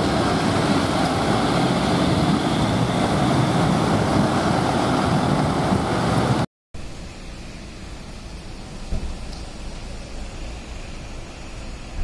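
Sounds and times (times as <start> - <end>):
vehicles driving past: 0.0 - 6.4
wind on microphone: 0.0 - 6.4.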